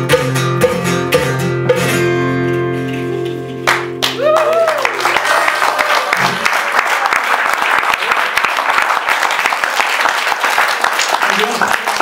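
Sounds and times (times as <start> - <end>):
audience applauding: 3.7 - 12.0.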